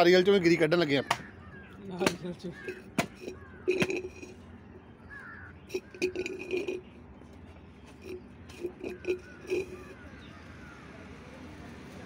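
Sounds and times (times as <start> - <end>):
knife knocking into coconut: 2.0 - 3.2.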